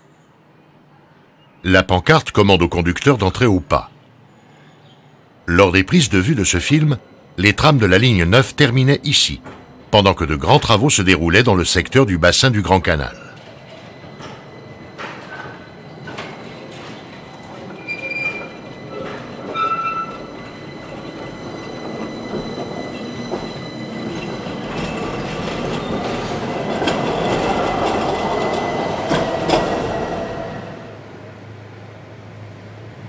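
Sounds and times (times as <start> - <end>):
tram wheels squealing on track: 4.2 - 31.1
rumble of wheels on rails: 5.3 - 33.0
clacks over rail joints: 13.4 - 20.4.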